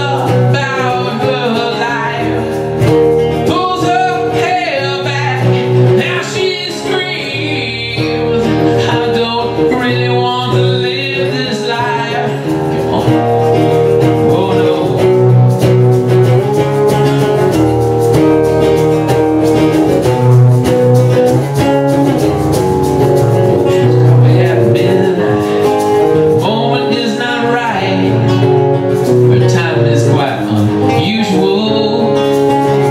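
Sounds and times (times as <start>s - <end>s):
person singing: 0.0s - 2.8s, 3.4s - 15.5s, 23.2s - 32.9s
acoustic guitars strumming: 0.0s - 32.9s.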